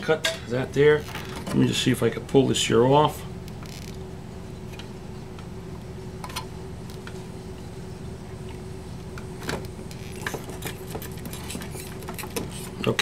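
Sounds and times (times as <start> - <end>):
steady low hum: 0.0 - 13.0.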